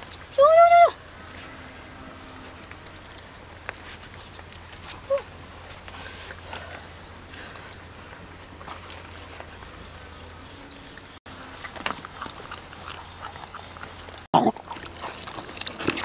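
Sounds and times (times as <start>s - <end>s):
leaf rustling: 2.2s - 10.1s
dogs chewing and smacking: 11.3s - 16.0s.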